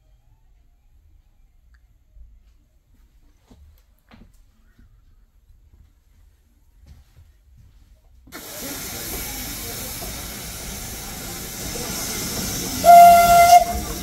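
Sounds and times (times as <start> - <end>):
steam locomotive hissing: 8.3 - 14.0
steam whistle blast: 12.0 - 14.0.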